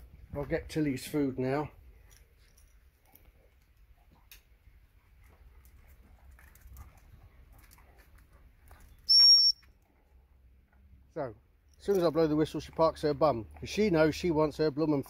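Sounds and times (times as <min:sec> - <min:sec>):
high-pitched whistle blast: 0:09.1 - 0:09.6.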